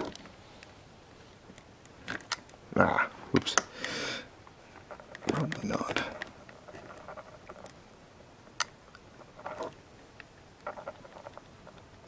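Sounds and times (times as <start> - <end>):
scratchy rustles: 4.7 - 7.7.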